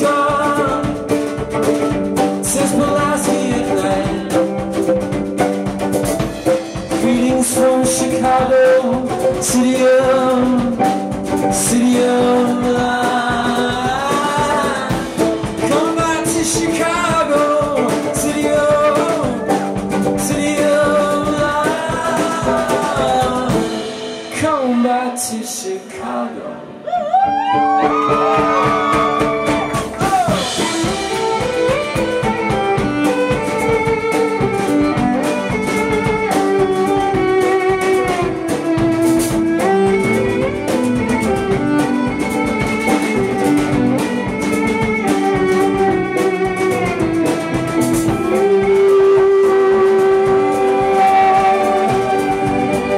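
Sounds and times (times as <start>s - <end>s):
man singing: 0.0s - 5.1s, 6.8s - 26.9s, 46.0s - 52.9s
bowed violin melody: 0.0s - 24.8s, 27.6s - 52.9s
plucked violin: 0.0s - 25.1s, 27.1s - 52.9s.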